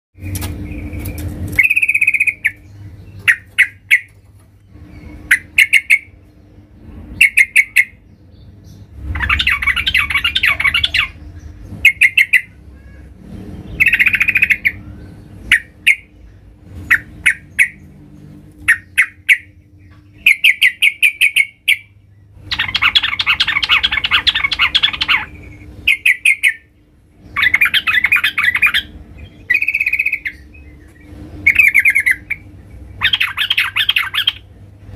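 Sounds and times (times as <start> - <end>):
bird calling loudly: 0.7 - 4.2, 4.8 - 6.2, 7.2 - 8.0, 9.1 - 13.1, 13.7 - 16.2, 16.8 - 17.9, 18.6 - 34.5
bird chattering harshly: 3.2 - 4.1, 22.5 - 26.7, 31.4 - 34.5.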